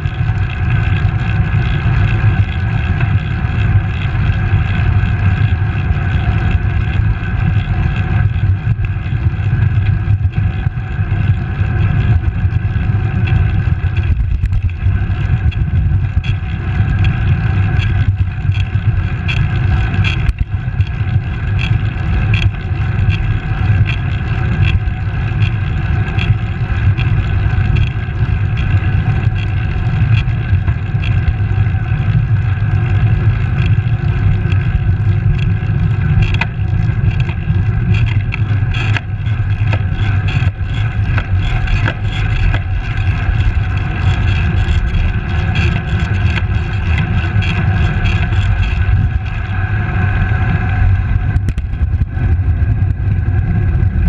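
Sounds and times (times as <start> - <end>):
tyre and road noise: 0.0 - 54.0
wind rumbling on microphone: 0.0 - 54.0.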